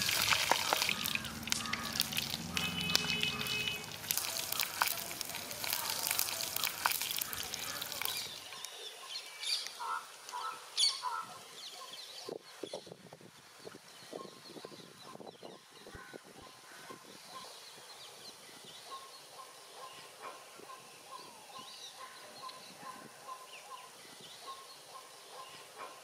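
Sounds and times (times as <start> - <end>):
fish sizzling in a hot pan: 0.0 - 8.4.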